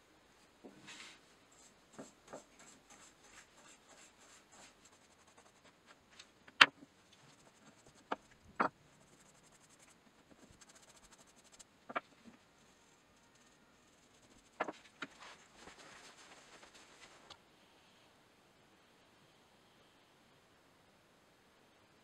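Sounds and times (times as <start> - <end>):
brush stroking on wood: 0.9 - 6.0, 7.2 - 11.6.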